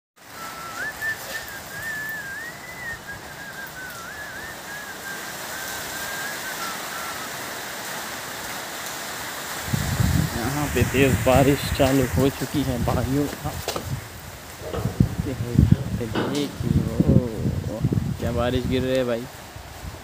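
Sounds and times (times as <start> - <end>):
heavy rain hiss: 0.2 - 20.0
person whistling a tune: 0.3 - 7.4.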